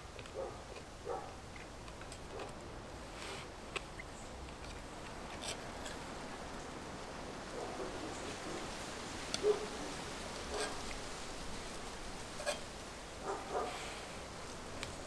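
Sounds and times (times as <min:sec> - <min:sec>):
faint steady background noise: 0:00.0 - 0:15.0
metal spoon scraping frying pan: 0:10.5 - 0:10.9, 0:12.3 - 0:12.7
spoon against wooden plate: 0:12.4 - 0:12.7.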